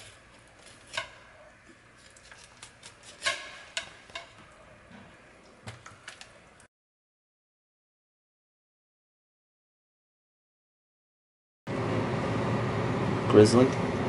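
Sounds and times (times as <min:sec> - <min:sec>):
knife scraping on cutting board: 0:00.0 - 0:04.5.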